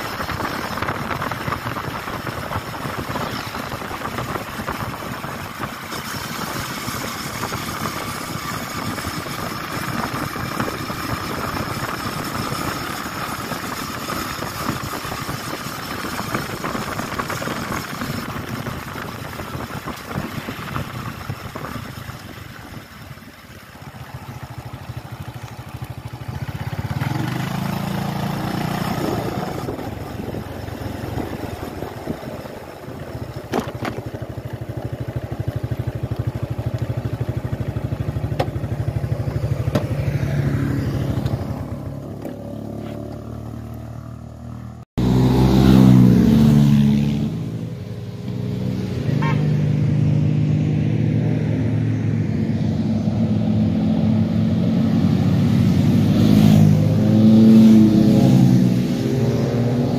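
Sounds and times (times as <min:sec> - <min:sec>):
steady rushing noise: 0:00.0 - 0:34.1
motorcycle engine running: 0:00.0 - 0:59.9.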